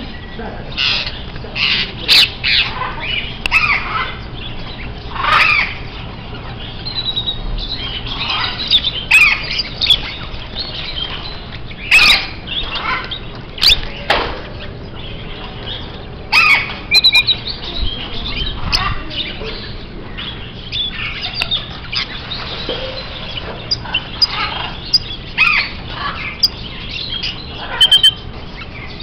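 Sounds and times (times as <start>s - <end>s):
small birds chirping: 0.0s - 29.0s
sharp bird squawks: 27.6s - 28.2s.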